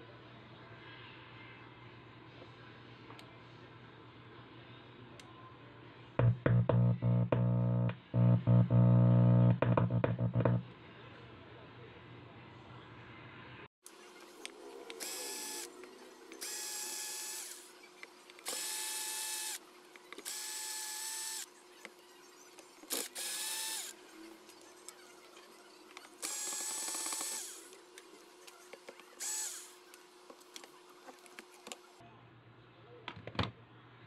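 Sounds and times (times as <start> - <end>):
electric screwdriver whining: 18.4 - 19.6, 26.2 - 27.7.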